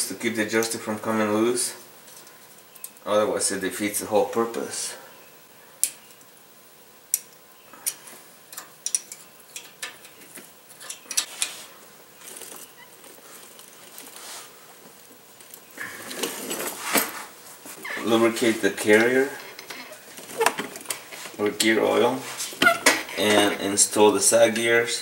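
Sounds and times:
light metal clicks and taps: 7.1 - 11.3.

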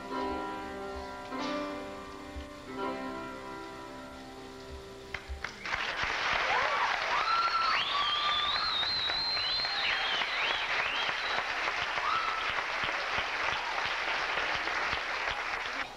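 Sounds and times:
audience applauding: 5.1 - 15.9
shrill whistles: 7.0 - 12.6.

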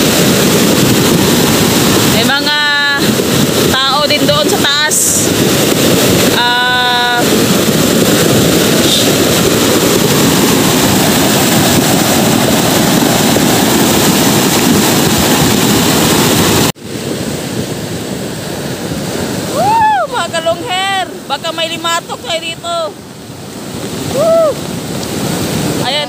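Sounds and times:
heavy rain pouring: 0.0 - 17.0, 23.5 - 26.0.

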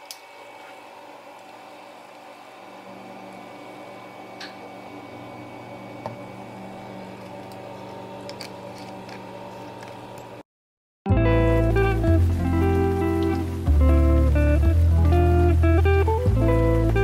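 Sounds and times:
low hum: 0.1 - 10.4.

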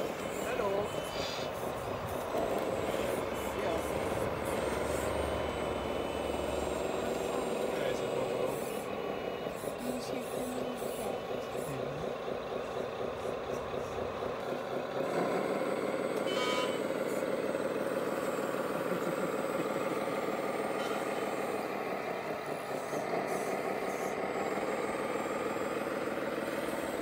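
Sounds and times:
diesel engine sound: 0.0 - 27.0.

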